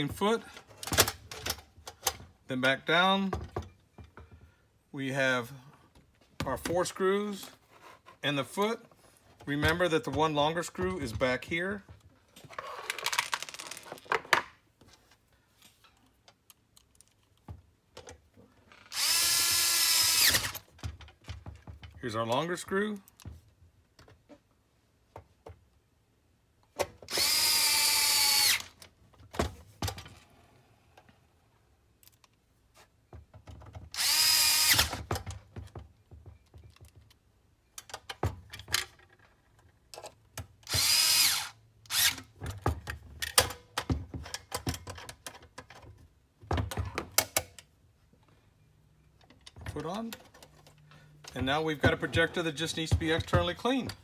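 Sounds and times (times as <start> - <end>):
power screwdriver driving screws: 18.9 - 20.7, 27.1 - 28.8, 33.9 - 35.1, 40.6 - 42.3
handling clicks and knocks: 20.5 - 22.3, 35.0 - 40.6, 42.3 - 47.8, 49.2 - 54.0.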